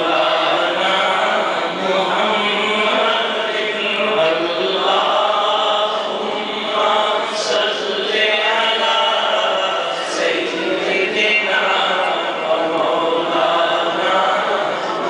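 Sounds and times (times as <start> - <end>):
men chanting devotional song: 0.0 - 15.0.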